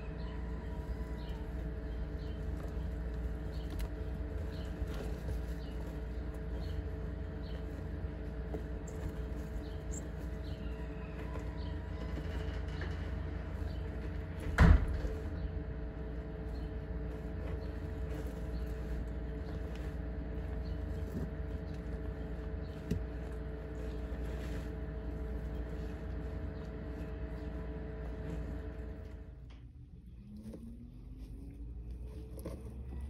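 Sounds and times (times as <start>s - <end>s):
low mechanical hum: 0.0s - 33.0s.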